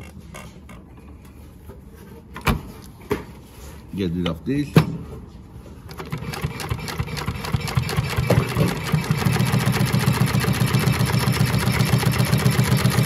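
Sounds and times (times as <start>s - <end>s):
sewing machine stitching: 5.9s - 13.0s.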